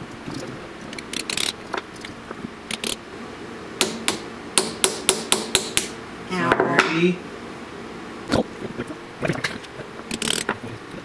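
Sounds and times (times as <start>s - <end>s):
hammer tapping on metal punch: 3.8s - 5.9s.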